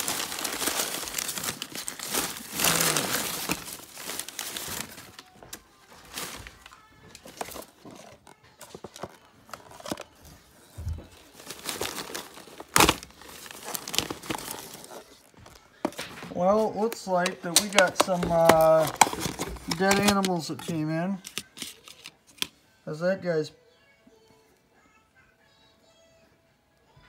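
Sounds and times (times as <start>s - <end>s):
newspaper rustling and crinkling: 0.0s - 22.5s
plastic cup handling: 6.1s - 22.5s.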